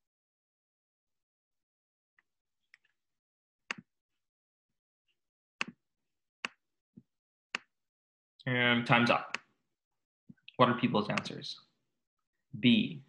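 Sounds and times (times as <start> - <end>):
computer mouse clicks: 11.1 - 11.4.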